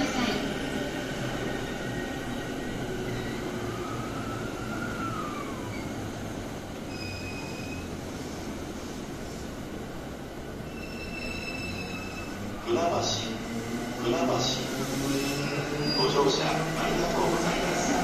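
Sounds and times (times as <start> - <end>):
brake squeal: 6.9 - 8.0, 10.6 - 12.4, 15.2 - 16.3.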